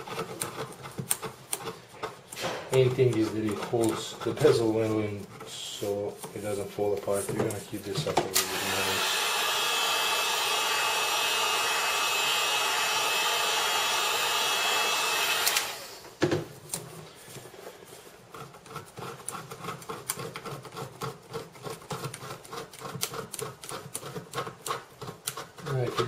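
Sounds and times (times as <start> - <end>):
metal tool scraping adhesive: 0.0 - 8.0, 18.2 - 26.0
heat gun blowing: 8.3 - 16.2.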